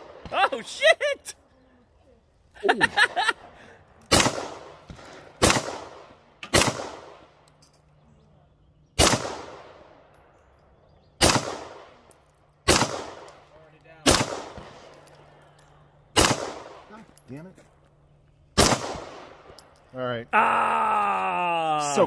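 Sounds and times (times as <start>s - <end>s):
handgun shots with echo: 4.1s - 7.1s, 11.2s - 12.0s, 12.6s - 13.4s, 14.0s - 14.8s, 16.2s - 16.8s, 18.6s - 19.3s.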